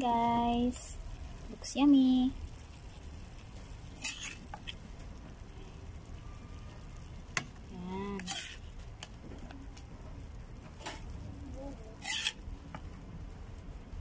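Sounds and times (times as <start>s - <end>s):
spoon scraping a pan: 3.9s - 4.8s, 8.1s - 9.1s, 12.0s - 12.5s.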